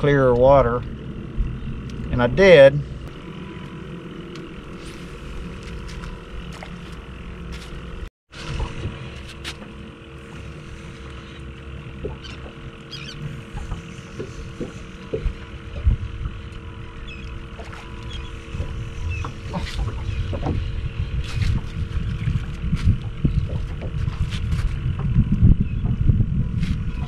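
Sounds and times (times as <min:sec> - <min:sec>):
faint steady hum: 0:00.0 - 0:27.0
water slapping boat hull: 0:00.0 - 0:27.0
wind buffeting microphone: 0:11.9 - 0:27.0.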